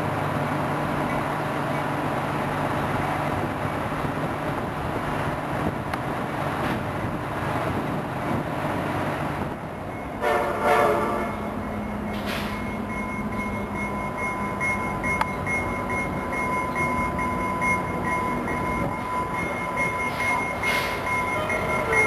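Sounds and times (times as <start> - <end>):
diesel train running: 0.0 - 22.0
bell ringing rapidly: 12.9 - 22.0.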